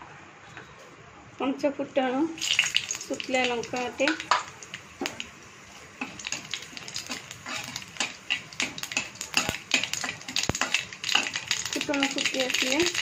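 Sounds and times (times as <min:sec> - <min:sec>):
faint sizzle of oil: 0:01.4 - 0:13.0
spatula scraping a wok: 0:06.0 - 0:11.7.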